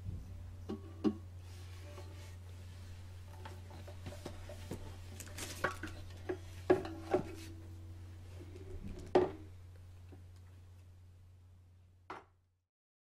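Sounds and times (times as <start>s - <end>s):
steady low hum: 0.0s - 12.1s
wooden knocks of guitar handling: 5.6s - 7.6s
guitar strings ringing: 6.7s - 8.4s.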